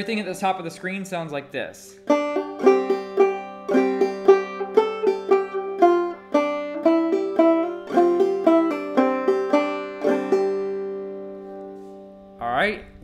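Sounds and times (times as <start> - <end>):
banjo playing: 2.0 - 12.4.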